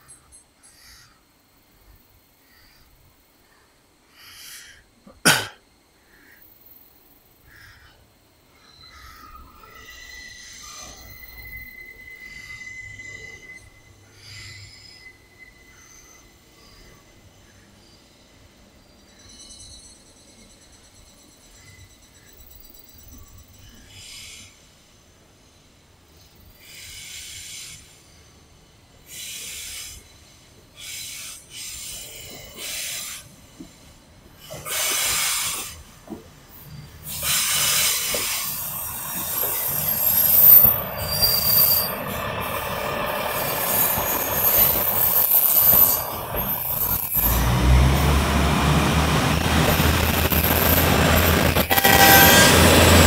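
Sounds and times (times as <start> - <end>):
deep rumble of rail cars: 0.0 - 53.0
train wheels squealing: 8.6 - 25.2, 26.1 - 48.1, 50.3 - 53.0
train passing: 8.8 - 53.0.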